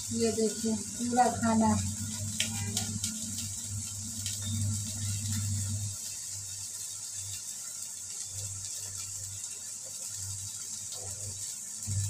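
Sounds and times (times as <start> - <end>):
low hum: 0.0 - 6.0
steady high hiss: 0.0 - 12.0.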